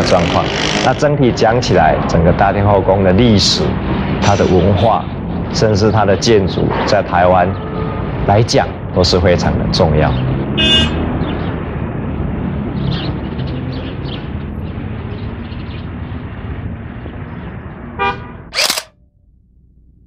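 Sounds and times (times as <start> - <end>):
short sharp noise: 18.6 - 18.9.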